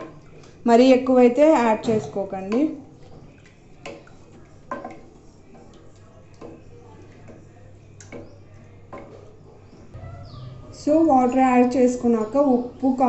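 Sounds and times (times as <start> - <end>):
spoon stirring curry: 2.2 - 10.8.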